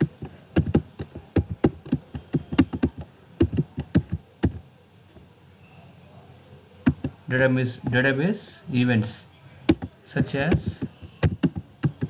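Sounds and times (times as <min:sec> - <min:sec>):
keyboard key clicks: 0:00.0 - 0:04.6, 0:06.8 - 0:07.2, 0:09.7 - 0:12.0.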